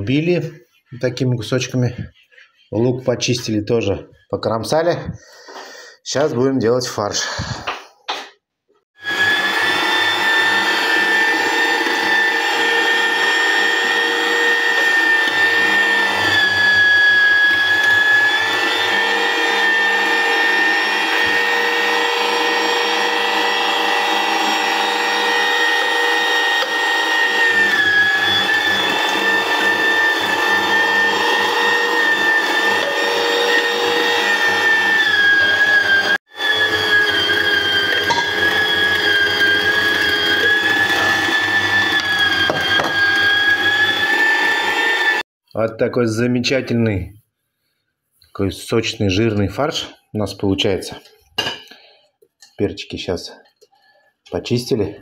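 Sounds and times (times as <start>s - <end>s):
electric meat grinder motor whine: 9.0s - 45.2s.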